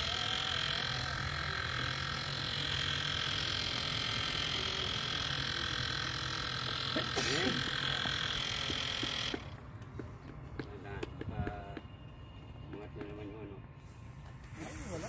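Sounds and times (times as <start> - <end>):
even hiss: 14.5 - 15.0.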